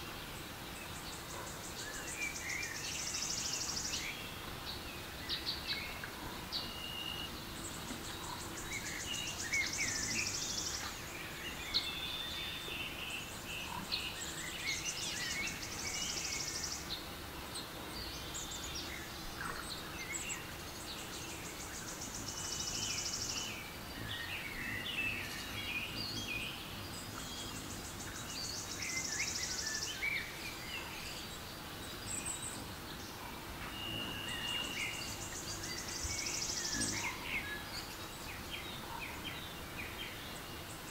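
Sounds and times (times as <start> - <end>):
birds chirping and whistling: 33.6 - 40.9.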